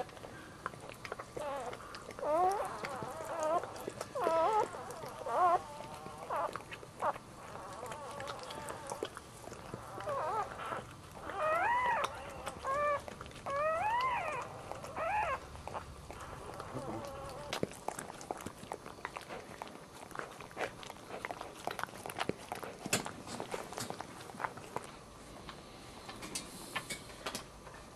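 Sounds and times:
puppy squealing: 1.4s - 17.7s.

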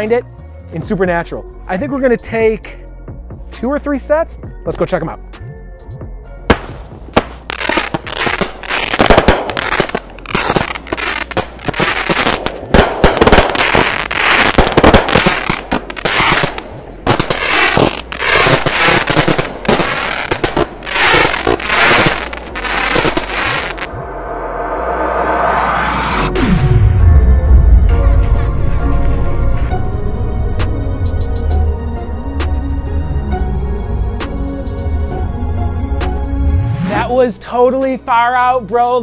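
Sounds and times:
fireworks bangs and crackling: 6.5s - 23.9s.

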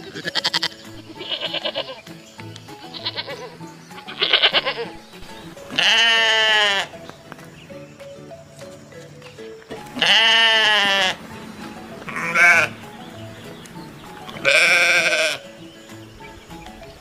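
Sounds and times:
young goat bleating: 0.0s - 2.1s, 2.8s - 7.0s, 9.8s - 11.3s, 12.0s - 12.9s, 14.1s - 15.5s
quiet background music: 0.0s - 17.0s.

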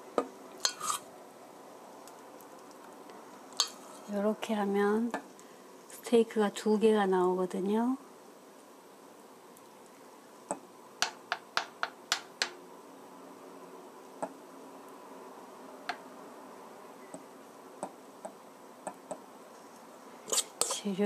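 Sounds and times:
metal spoon tapping frying pan: 10.5s - 12.6s.

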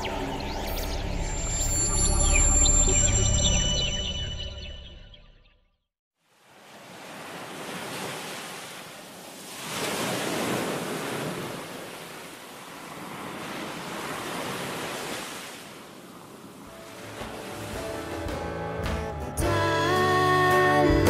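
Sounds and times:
sea waves washing: 6.3s - 19.1s.

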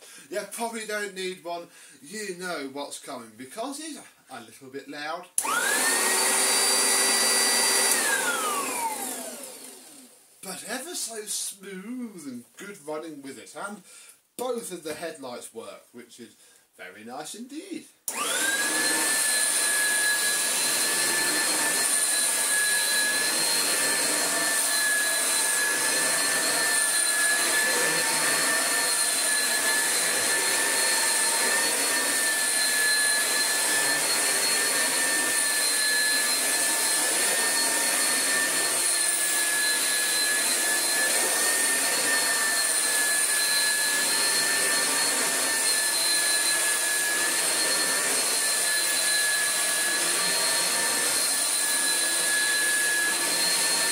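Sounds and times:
vacuum cleaner whining: 5.4s - 10.2s, 18.1s - 53.9s.

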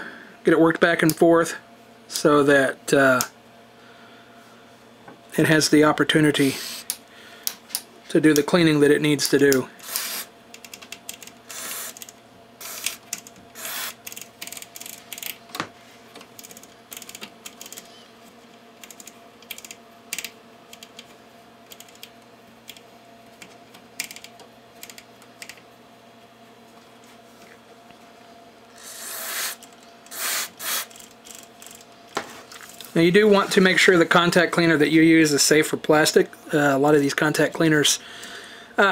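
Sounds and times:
rotary switches clicking: 9.2s - 15.4s, 16.2s - 17.8s, 18.8s - 21.1s, 21.7s - 25.6s
short spray hisses: 28.8s - 30.9s.

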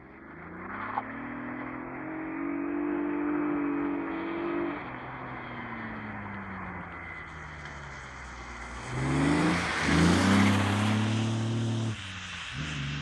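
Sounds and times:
car engine revving: 8.7s - 13.0s.

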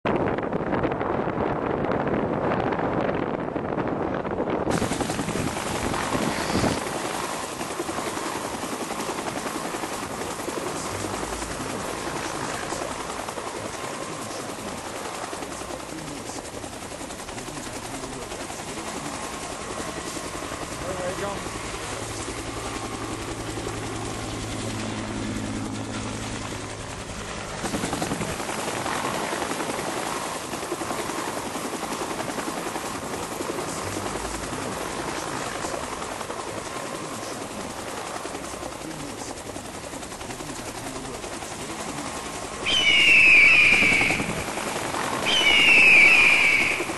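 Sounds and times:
helicopter drone: 0.1s - 46.9s
bird of prey screeching: 6.3s - 6.8s, 42.6s - 44.4s, 45.2s - 46.9s.

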